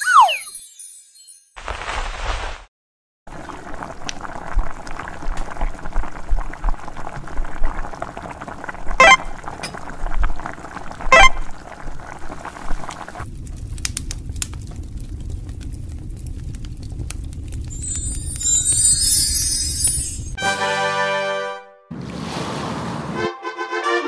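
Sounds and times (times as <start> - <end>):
noodles bubbling in a pan: 3.3 - 19.8
low steady rumble: 13.2 - 18.6.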